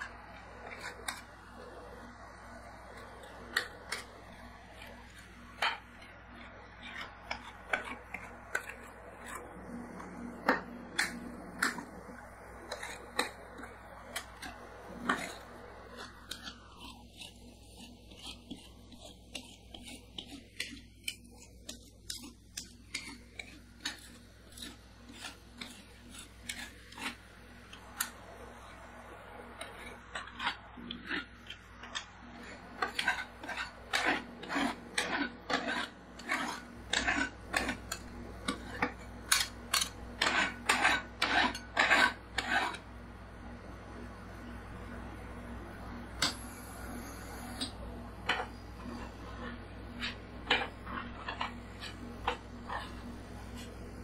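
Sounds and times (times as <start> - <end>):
metal scrapers on steel plate: 22.2 - 28.1, 29.6 - 42.8, 46.2 - 53.7.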